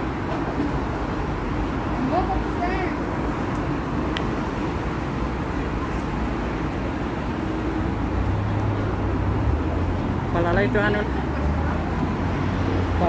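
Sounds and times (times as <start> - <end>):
road traffic: 0.0 - 13.0.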